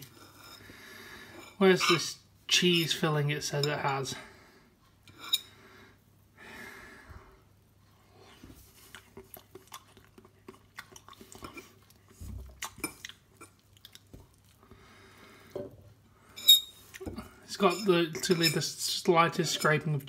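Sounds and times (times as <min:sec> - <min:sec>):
person chewing: 0:08.2 - 0:14.9.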